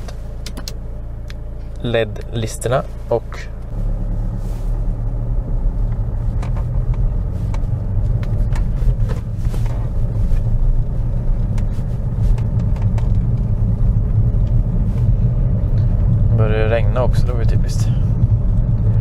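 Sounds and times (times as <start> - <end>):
car engine and road rumble: 0.0 - 19.0.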